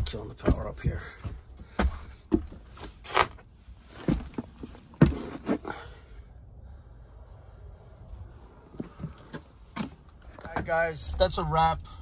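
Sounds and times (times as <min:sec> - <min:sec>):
footsteps on wooden floor: 0:00.0 - 0:02.9, 0:04.0 - 0:05.4.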